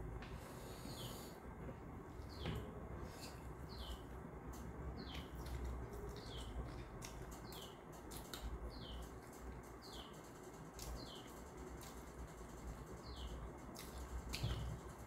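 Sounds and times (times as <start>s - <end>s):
bird chirping: 2.3s - 4.1s, 5.0s - 6.8s, 7.4s - 9.1s
crunchy chewing: 5.1s - 9.3s.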